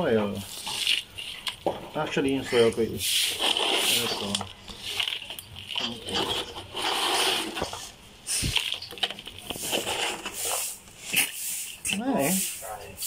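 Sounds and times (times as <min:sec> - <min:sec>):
soil rustling and scraping: 0:00.0 - 0:13.0.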